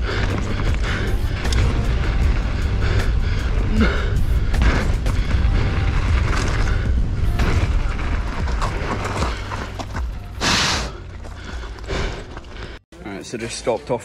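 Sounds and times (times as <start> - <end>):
wind buffeting microphone: 0.0 - 9.8
tyres rolling on gravel: 0.0 - 12.8.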